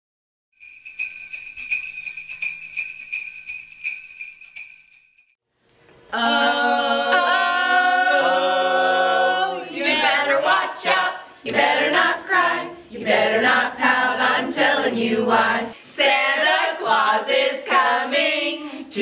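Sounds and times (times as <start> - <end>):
jingle bells shaken: 0.6 - 5.4
group singing a cappella: 6.1 - 19.0.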